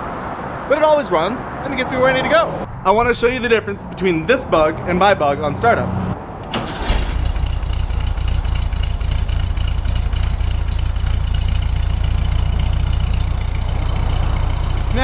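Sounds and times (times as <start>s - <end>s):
car engine idling: 6.6s - 15.0s.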